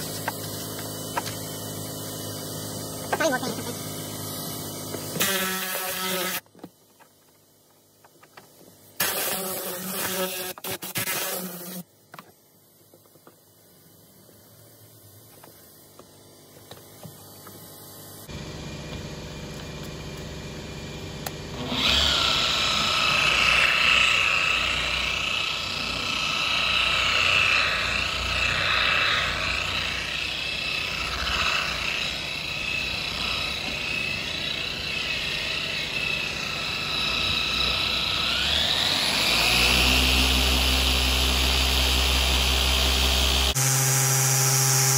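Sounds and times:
polisher motor whining: 0:02.3 - 0:06.4, 0:18.3 - 0:44.9.

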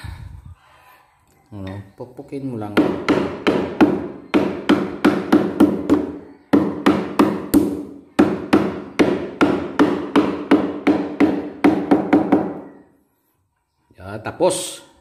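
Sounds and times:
hammer pounding on plywood: 0:02.7 - 0:12.8.

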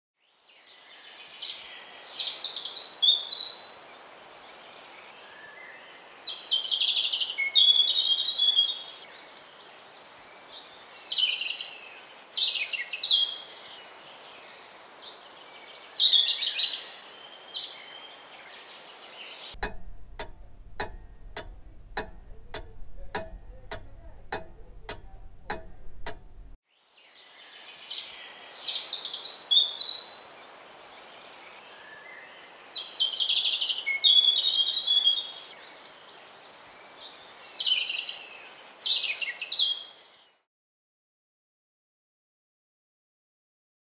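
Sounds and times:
evenly spaced ticks: 0:19.6 - 0:26.6
low hum: 0:19.6 - 0:26.6
robin singing: 0:19.6 - 0:26.6.

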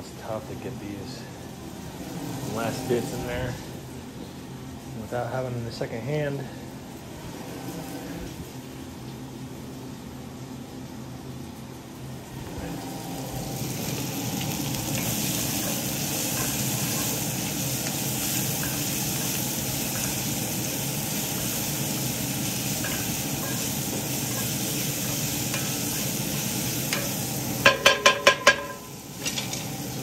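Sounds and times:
vegetables sizzling in oil: 0:12.3 - 0:30.0
loud ringing knocks: 0:27.6 - 0:28.8.

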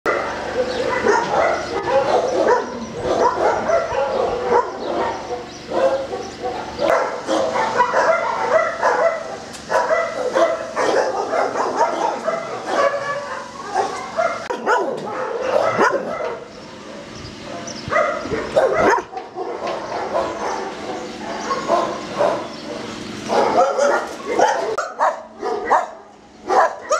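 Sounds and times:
dogs barking: 0:00.1 - 0:26.9.

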